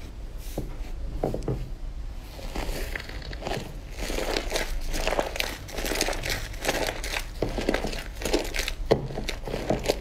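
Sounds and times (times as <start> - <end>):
slime squelching and popping: 2.4 - 10.0.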